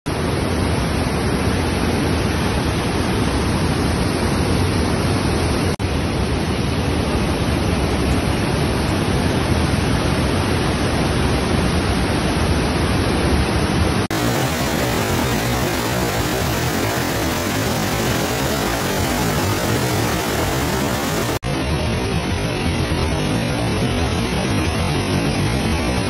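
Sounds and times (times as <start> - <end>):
waterfall rushing over rocks: 9.3 - 21.5.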